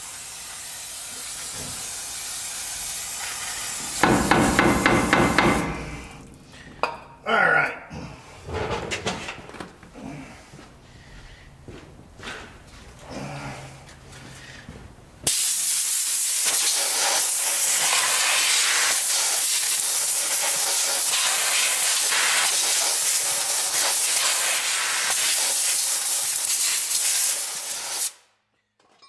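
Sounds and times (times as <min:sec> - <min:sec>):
compressed air blow gun hissing: 0:00.0 - 0:06.2, 0:15.3 - 0:28.2.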